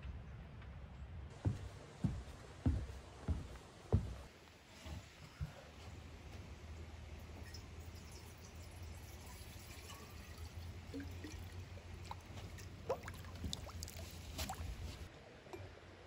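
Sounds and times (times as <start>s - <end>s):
water dripping into pond: 7.0s - 14.8s
bottle filling with gurgle: 7.5s - 14.0s.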